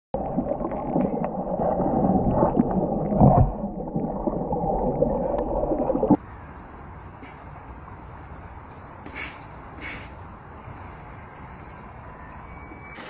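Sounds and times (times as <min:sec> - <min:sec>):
muffled underwater water rushing: 0:00.1 - 0:06.2.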